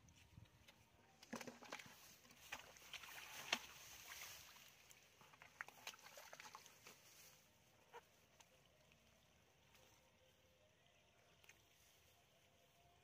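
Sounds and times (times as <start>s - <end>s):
hands squelching in wet mud: 1.4s - 9.8s.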